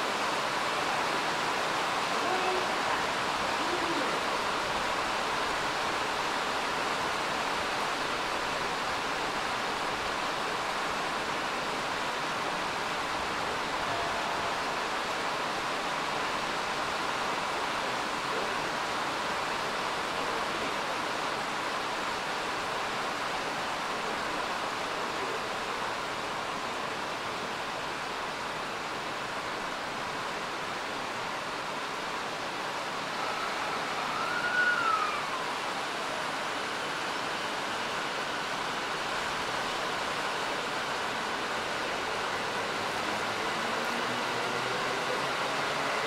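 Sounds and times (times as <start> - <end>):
heavy rain: 0.0 - 46.0
whistle-like tone: 33.2 - 35.5.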